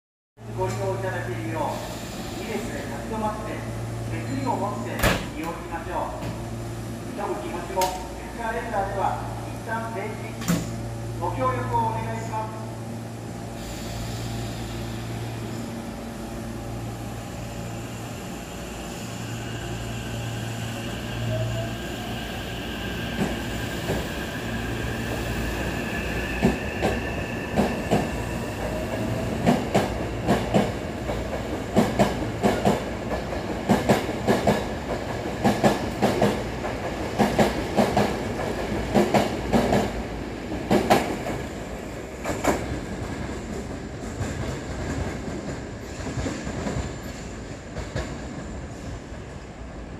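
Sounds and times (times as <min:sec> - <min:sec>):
train wheels clickety-clack: 0:26.4 - 0:41.5, 0:42.2 - 0:49.3.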